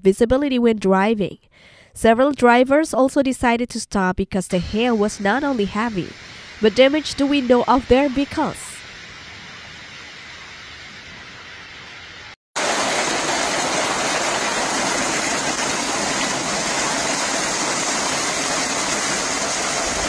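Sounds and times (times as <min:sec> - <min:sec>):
hail and heavy rain: 0:12.6 - 0:20.0.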